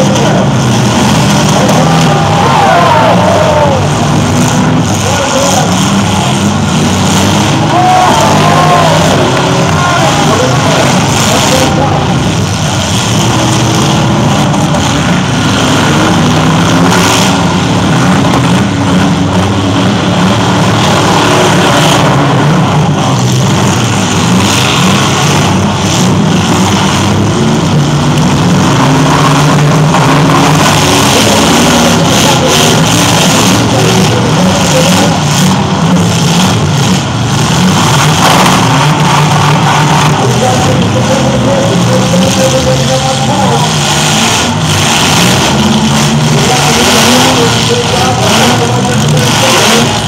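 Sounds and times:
car engines revving hard: 0:00.0 - 0:50.0
cars colliding bang: 0:37.9 - 0:40.5.

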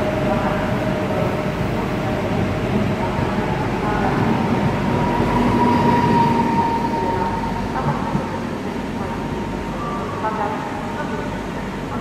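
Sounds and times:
electric train whine: 0:00.0 - 0:12.0
train rumble: 0:00.0 - 0:12.0.

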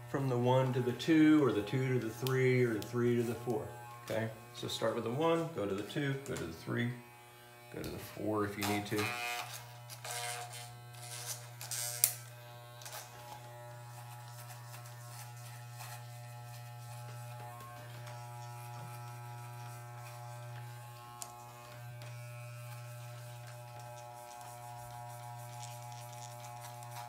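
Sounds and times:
hair clippers buzzing: 0:00.0 - 0:27.0.

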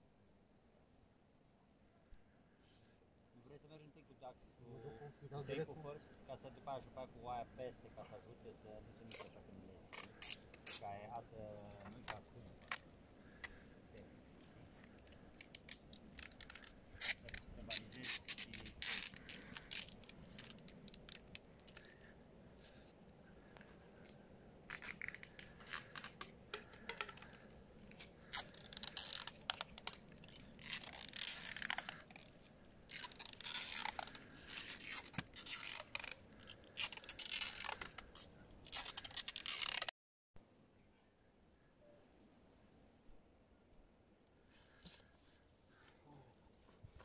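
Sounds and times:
rustling and crackling: 0:08.9 - 0:39.9.

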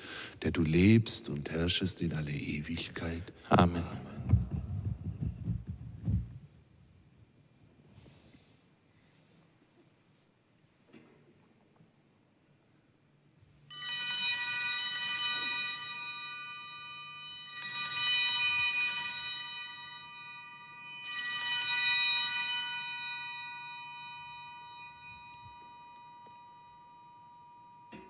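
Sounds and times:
altar bells ringing: 0:13.7 - 0:28.0.

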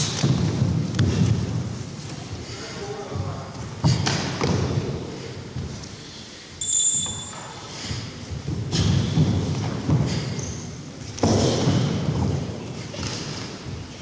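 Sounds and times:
bare feet striking wooden floor: 0:00.0 - 0:02.5, 0:03.2 - 0:05.9, 0:07.4 - 0:14.0
high squeak: 0:06.6 - 0:07.7.

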